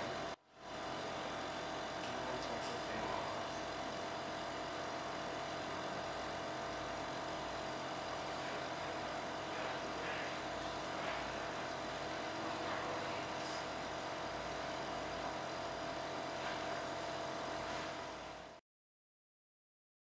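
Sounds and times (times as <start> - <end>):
electric suction unit running: 0.0 - 18.6.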